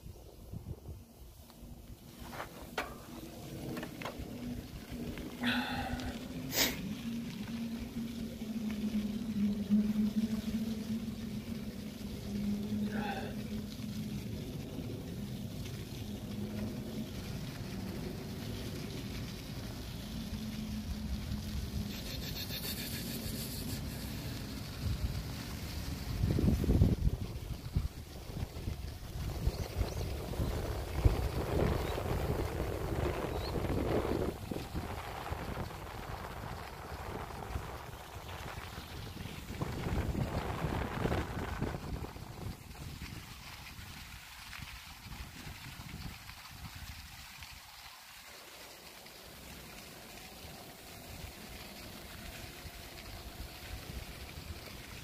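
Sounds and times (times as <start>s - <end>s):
wind rumbling on microphone: 0.0s - 55.0s
drone propellers humming: 0.8s - 38.4s.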